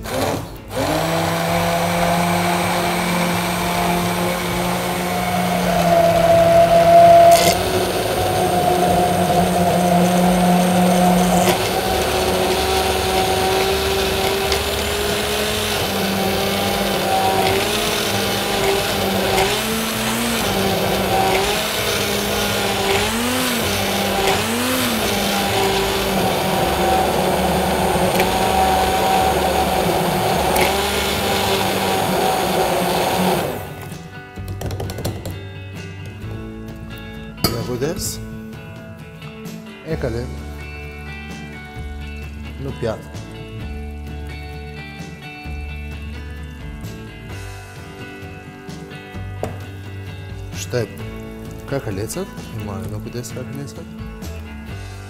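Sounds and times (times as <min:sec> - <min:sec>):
immersion blender motor: 0:00.0 - 0:34.0.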